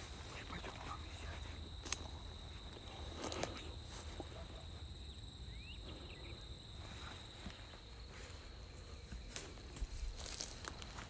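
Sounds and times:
brush rustling: 0.0 - 4.9, 6.8 - 11.0
high-pitched insect trill: 0.0 - 11.0
footsteps: 6.8 - 11.0.

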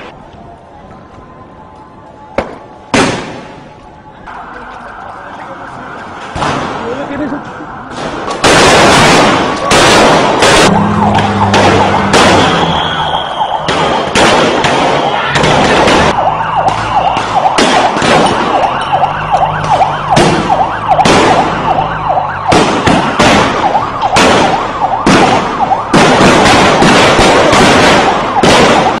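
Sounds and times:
wavering siren: 3.6 - 8.4, 10.4 - 29.0
gunfire bangs: 7.9 - 18.8, 19.5 - 21.8, 22.4 - 29.0.

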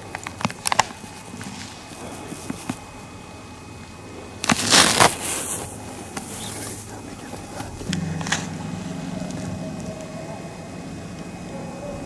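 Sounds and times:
low mechanical drone: 0.0 - 12.0.

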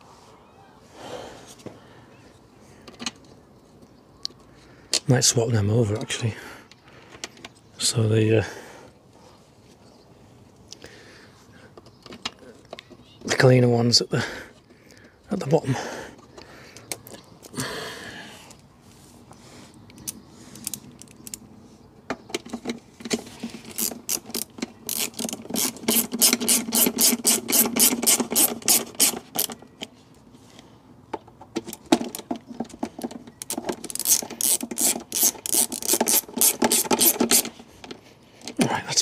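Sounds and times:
ratchet screwdriver clicking: 23.7 - 29.5, 33.4 - 37.5.

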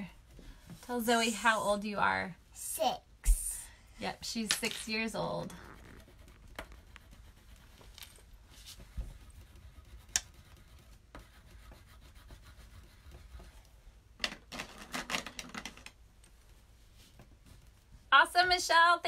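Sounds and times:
art supplies rubbing on paper: 4.2 - 13.6.

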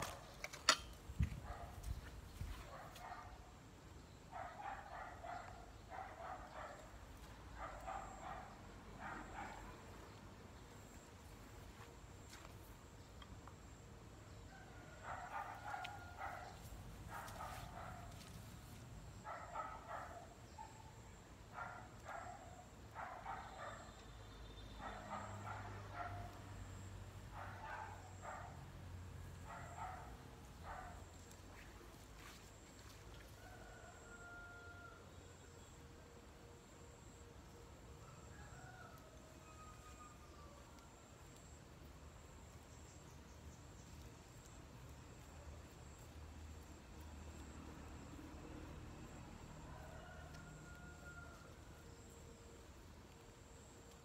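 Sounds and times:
dog barking: 1.4 - 1.9, 2.6 - 3.5, 4.3 - 7.0, 7.6 - 9.8, 14.7 - 18.3, 19.2 - 24.0, 24.8 - 28.7, 29.4 - 31.1.

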